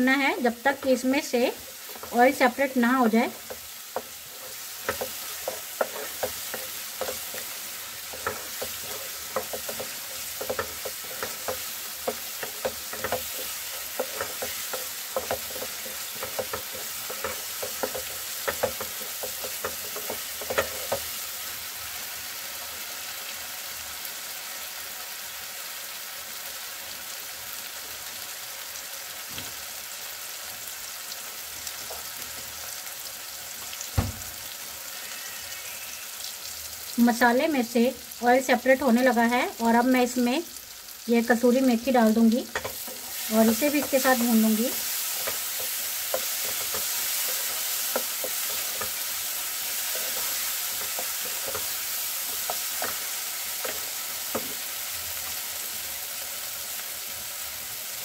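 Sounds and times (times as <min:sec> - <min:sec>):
masala sizzling in oil: 0:00.0 - 0:58.0
spatula stirring and scraping: 0:00.7 - 0:21.4, 0:42.4 - 0:54.7
knock: 0:34.0 - 0:34.3.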